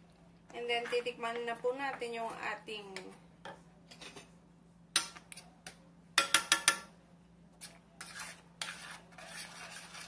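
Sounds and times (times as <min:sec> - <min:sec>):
spoons knocking against metal pan: 0:06.2 - 0:06.9.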